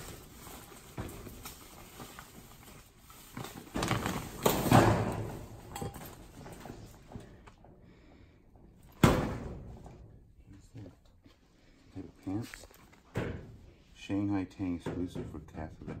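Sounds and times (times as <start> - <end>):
plastic bag rustling and crinkling: 0.0 - 7.0.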